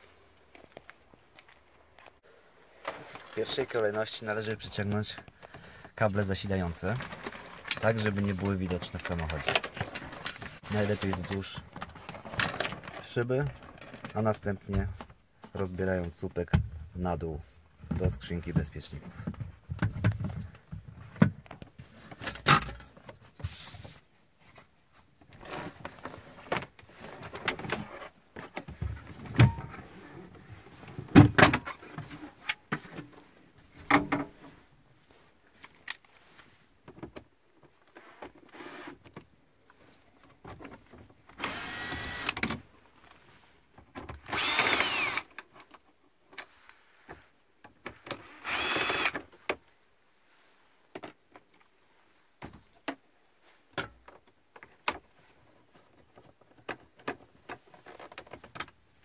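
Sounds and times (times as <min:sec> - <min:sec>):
rustles clicks and knocks: 0:02.8 - 0:16.8, 0:17.8 - 0:49.8, 0:53.7 - 0:59.0
power screwdriver whining: 0:38.5 - 0:39.0, 0:41.4 - 0:42.4, 0:44.3 - 0:45.3, 0:48.2 - 0:49.2.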